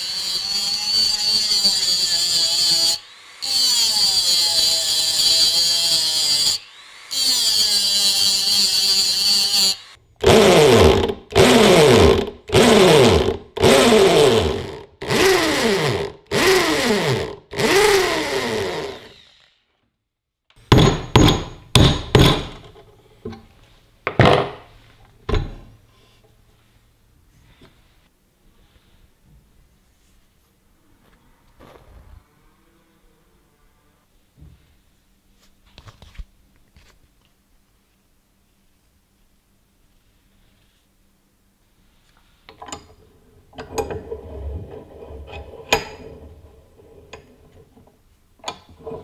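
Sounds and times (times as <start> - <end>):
drill boring into metal: 0.0 - 19.6
rotary tool cutting metal: 0.0 - 19.7.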